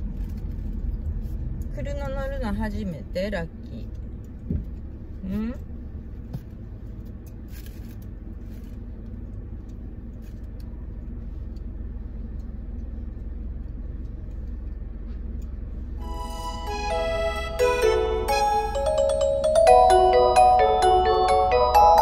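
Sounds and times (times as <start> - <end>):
car driving rumble inside cabin: 0.0 - 22.0
light chiming music: 16.0 - 22.0.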